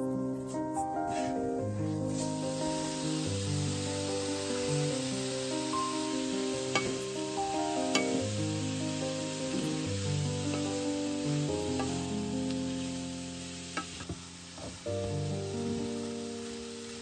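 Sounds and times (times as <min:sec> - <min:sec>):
soft background music: 0:00.0 - 0:17.0
food sizzling in a frying pan: 0:01.0 - 0:17.0
spatula knocking on a pan: 0:06.7 - 0:08.3, 0:11.7 - 0:12.1.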